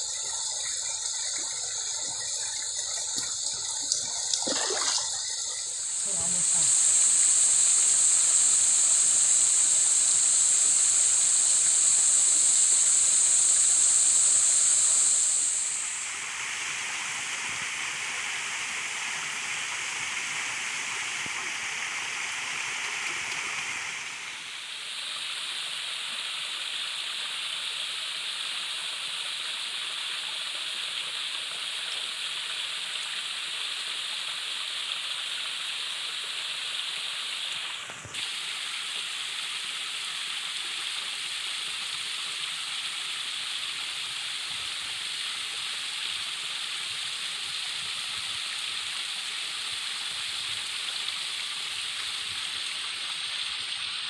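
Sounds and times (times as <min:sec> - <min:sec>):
stream rushing over rocks: 0:00.0 - 0:06.3.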